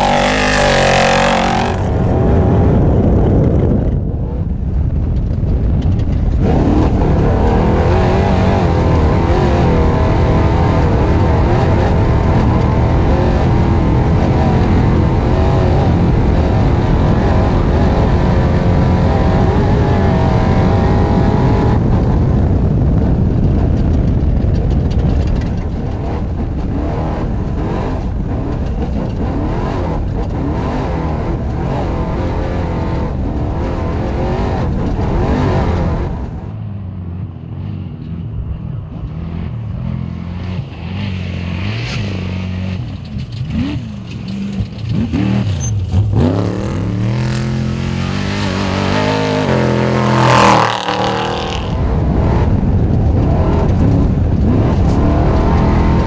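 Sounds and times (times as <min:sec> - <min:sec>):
road noise: 0:00.0 - 0:56.0.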